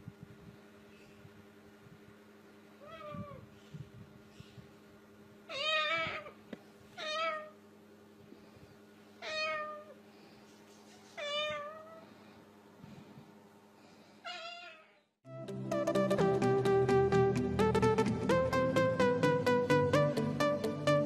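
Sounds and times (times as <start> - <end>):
cockatoo meowing: 2.8 - 3.6, 5.5 - 6.4, 7.0 - 7.6, 9.2 - 10.0, 14.2 - 15.1.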